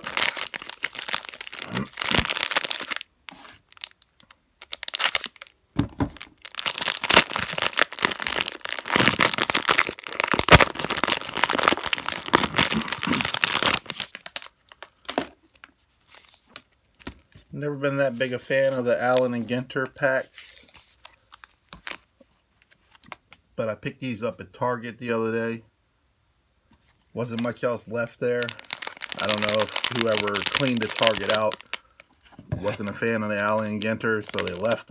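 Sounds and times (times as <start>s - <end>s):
plastic wrapper tearing and crinkling: 0.0s - 17.4s, 20.6s - 22.1s, 28.3s - 34.9s.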